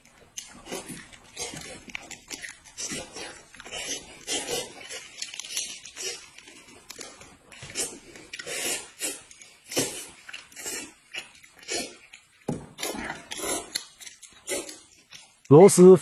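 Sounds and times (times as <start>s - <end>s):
chewing and mouth noises: 0.0s - 15.5s.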